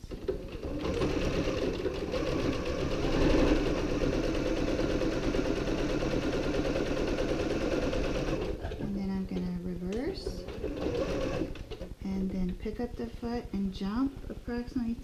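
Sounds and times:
electric sewing machine running: 0.1s - 8.8s, 10.4s - 11.8s.

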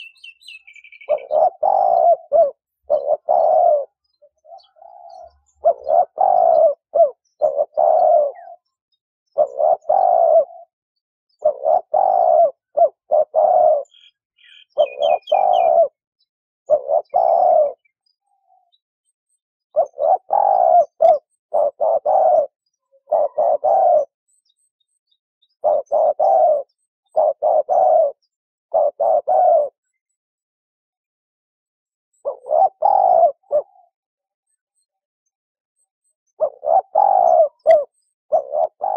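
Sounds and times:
high bird chirps: 0.0s - 10.3s, 11.3s - 16.0s
dove cooing: 0.0s - 16.0s, 16.7s - 18.8s, 19.7s - 24.6s, 25.5s - 30.1s, 32.1s - 34.6s, 36.0s - 38.9s.

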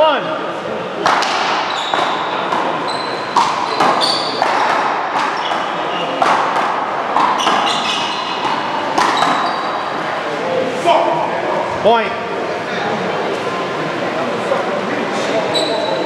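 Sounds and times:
ball smacks echoing in hall: 0.9s - 10.0s
shoe squeaks: 1.6s - 4.5s, 5.2s - 6.2s, 7.3s - 8.4s, 9.0s - 9.9s, 15.5s - 16.0s.

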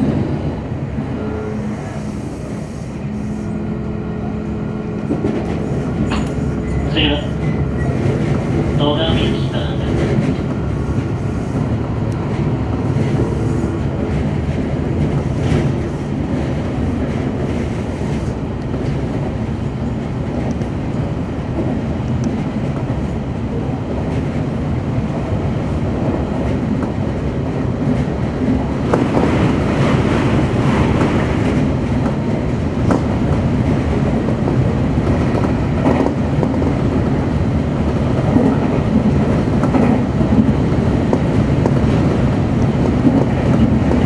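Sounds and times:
train wheels rumbling on rail: 0.0s - 44.0s
train wheel clicks: 5.1s - 6.8s, 37.9s - 44.0s.

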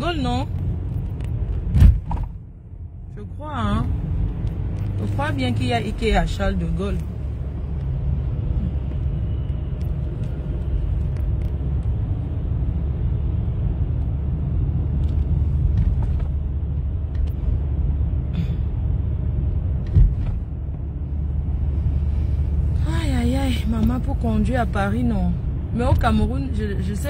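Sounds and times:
car cabin engine and tyre rumble: 0.0s - 27.0s
sharp thump: 1.6s - 2.4s, 19.8s - 20.4s.

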